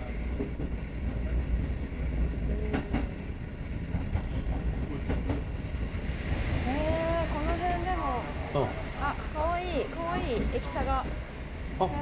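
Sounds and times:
train low rumble: 0:00.0 - 0:12.0
wheels clacking over rail joints: 0:00.3 - 0:06.4.

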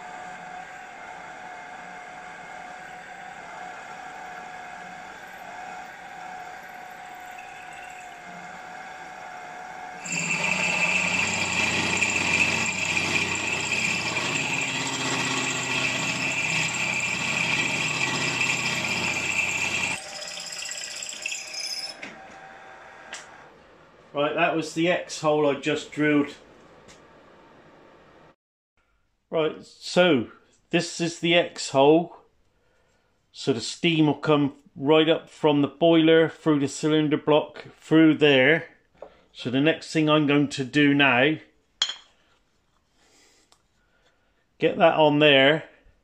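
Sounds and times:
drill bit grinding into metal: 0:00.0 - 0:23.5
pillar drill motor hum: 0:00.0 - 0:24.2.

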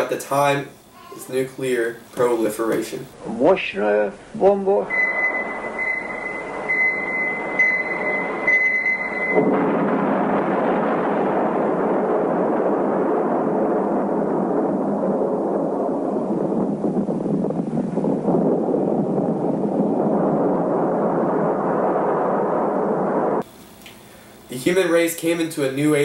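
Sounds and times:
high electronic beeps: 0:04.9 - 0:09.5
deep explosion rumble: 0:04.9 - 0:23.5.

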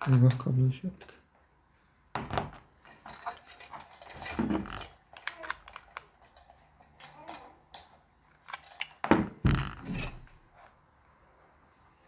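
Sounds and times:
metallic clicks and scrapes: 0:02.8 - 0:09.0.

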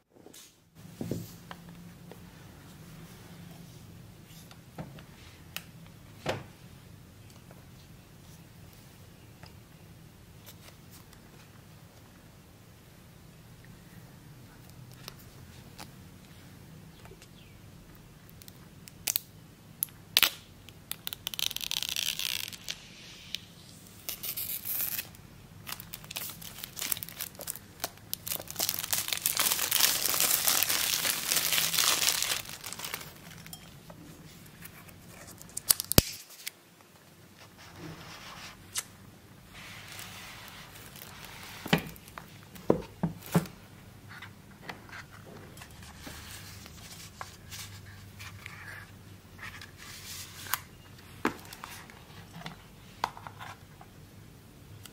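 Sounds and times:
plastic wrap crinkling: 0:20.9 - 0:22.8, 0:24.1 - 0:33.6, 0:39.9 - 0:42.6.

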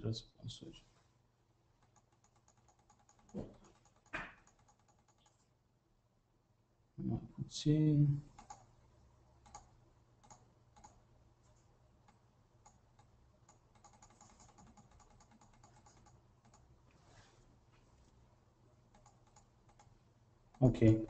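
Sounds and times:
typing on computer keyboard: 0:01.8 - 0:05.4, 0:08.3 - 0:08.7, 0:09.4 - 0:11.0, 0:12.0 - 0:16.7, 0:18.9 - 0:19.9.

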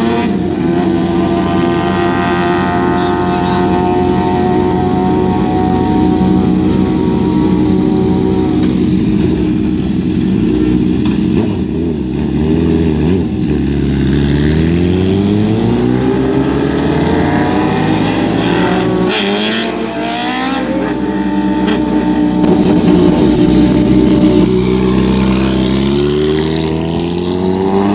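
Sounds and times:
motorcycle engine accelerating: 0:00.0 - 0:27.9
motorcycles idling: 0:04.6 - 0:12.2, 0:22.2 - 0:26.0.

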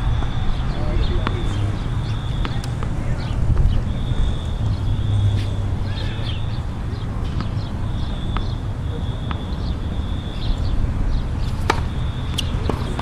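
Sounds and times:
tennis balls being struck: 0:01.1 - 0:03.0, 0:07.3 - 0:08.6, 0:11.4 - 0:13.0.

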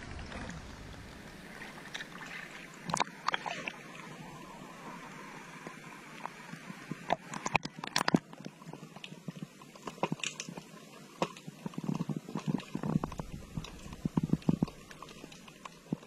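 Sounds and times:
low rumble: 0:00.0 - 0:02.8, 0:13.0 - 0:15.4
muffled underwater clicks and knocks: 0:01.6 - 0:03.8, 0:05.6 - 0:16.0.

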